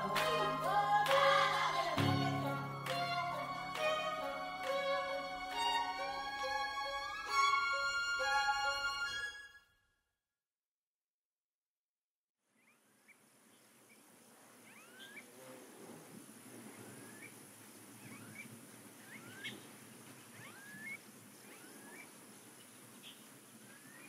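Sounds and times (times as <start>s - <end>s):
rising whistled animal calls: 18.0s - 19.6s, 20.3s - 22.1s.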